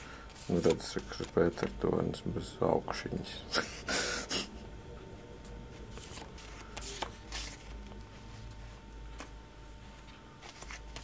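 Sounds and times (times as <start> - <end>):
paper photographs rustling: 0.2 - 1.9, 5.9 - 11.0.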